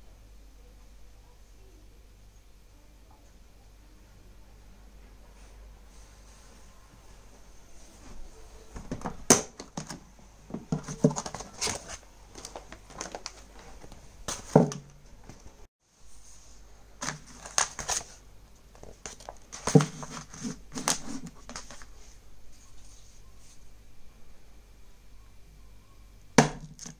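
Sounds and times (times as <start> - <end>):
plastic bag crinkling: 10.7 - 14.9, 17.0 - 22.0.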